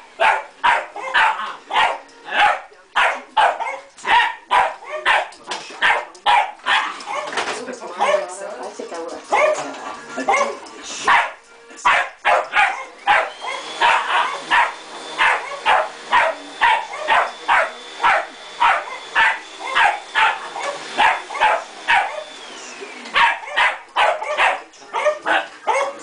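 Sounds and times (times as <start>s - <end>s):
small dog barking: 0.2s - 7.4s, 10.3s - 22.3s, 23.2s - 26.0s
vacuum cleaner motor running: 8.8s - 26.0s.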